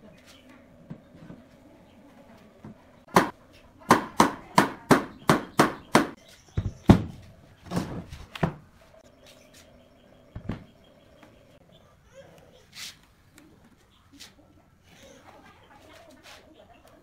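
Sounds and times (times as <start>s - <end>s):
sharp knocks on wood: 3.1s - 7.2s.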